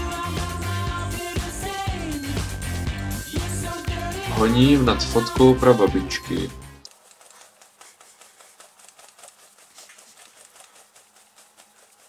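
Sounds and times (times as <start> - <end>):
hand rubbing on cloth: 6.9 - 12.0.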